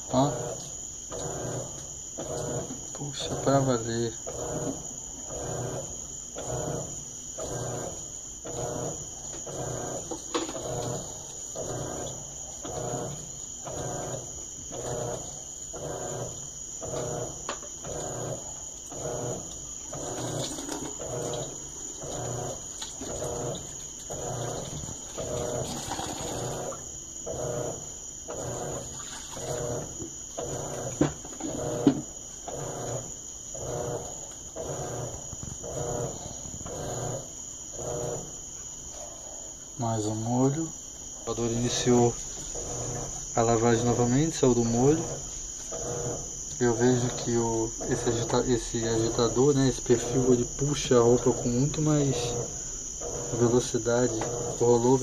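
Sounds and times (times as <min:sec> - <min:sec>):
washing machine motor humming: 0:00.0 - 0:55.0
clothes and water churning: 0:17.9 - 0:37.2, 0:41.4 - 0:43.9.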